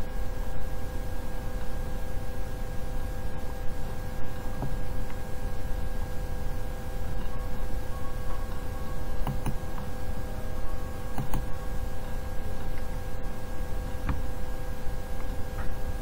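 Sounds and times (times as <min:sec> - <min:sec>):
electrical hum: 0:00.0 - 0:16.0
low room rumble: 0:00.0 - 0:16.0
computer mouse clicks: 0:09.2 - 0:09.9, 0:11.2 - 0:11.5.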